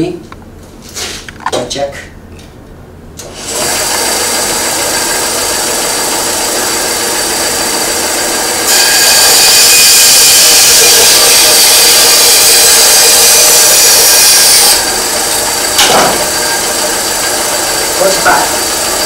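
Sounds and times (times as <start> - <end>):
band saw cutting wood: 3.2 - 19.0
band saw motor whining: 3.2 - 19.0.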